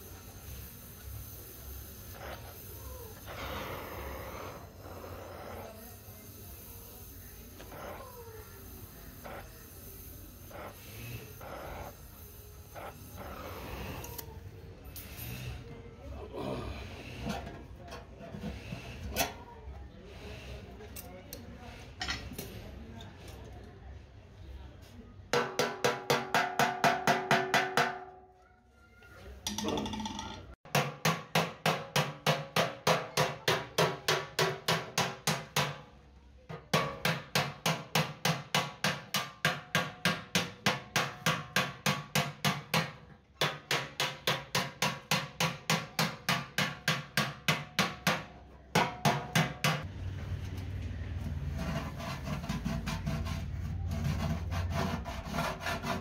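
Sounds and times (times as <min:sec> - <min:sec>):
hammer tapping on sheet metal: 0:25.3 - 0:28.2, 0:29.5 - 0:35.9, 0:36.5 - 0:49.9
scraping rub: 0:51.1 - 0:56.0.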